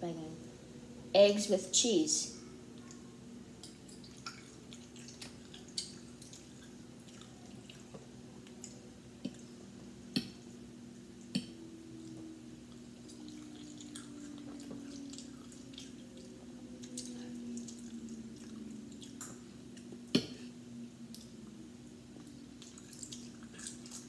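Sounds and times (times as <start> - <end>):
faint steady hum: 0.0 - 24.0
wet chewing clicks and smacks: 3.7 - 9.5, 12.1 - 20.2, 22.2 - 24.0.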